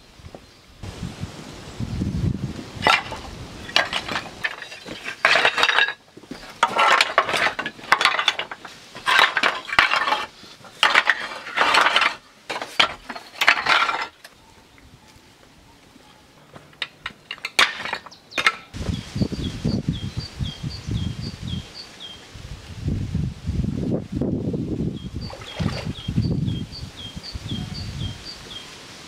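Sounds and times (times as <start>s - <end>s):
stone scraping and clinking: 2.8s - 14.3s, 16.8s - 18.8s.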